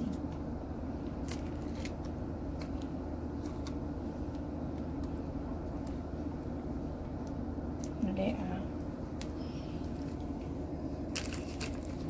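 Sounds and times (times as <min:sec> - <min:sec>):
low mechanical hum: 0:00.0 - 0:12.0
plastic sachet crinkling: 0:01.2 - 0:03.8, 0:11.1 - 0:12.0.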